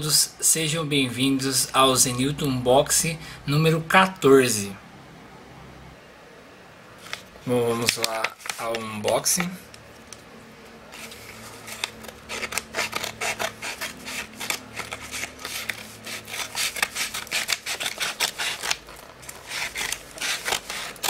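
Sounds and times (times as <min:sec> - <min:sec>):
paper crinkling and rustling: 0:07.0 - 0:10.2, 0:10.9 - 0:21.0.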